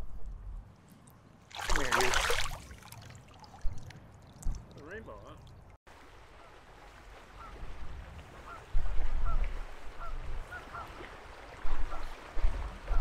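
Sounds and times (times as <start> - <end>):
wind buffeting microphone: 7.0 - 13.0
waterfowl calling: 7.3 - 7.6, 8.3 - 13.0.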